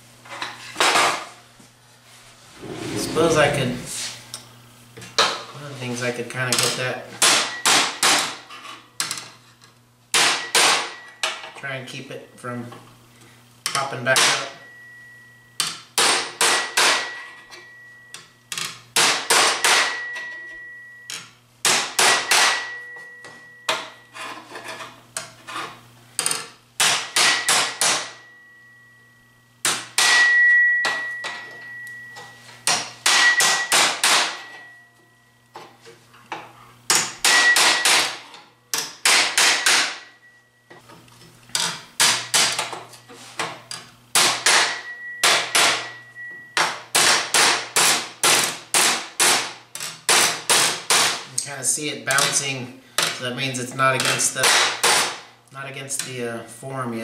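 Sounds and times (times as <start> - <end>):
hammer striking sheet steel: 16.0 - 17.4, 19.0 - 20.2, 21.7 - 23.0, 26.8 - 28.3, 29.7 - 31.4, 32.7 - 34.8, 36.9 - 40.2, 44.2 - 46.0
steel ringing: 30.1 - 32.4.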